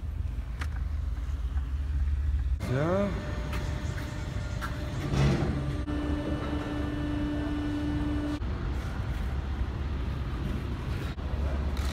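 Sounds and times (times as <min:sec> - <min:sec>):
electric gate motor humming: 0:02.6 - 0:08.4
motor whine: 0:02.6 - 0:08.4.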